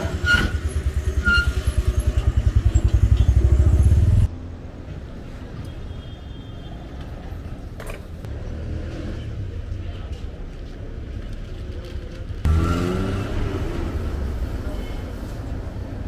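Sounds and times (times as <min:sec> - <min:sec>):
vehicle engine revving: 0:12.4 - 0:14.3.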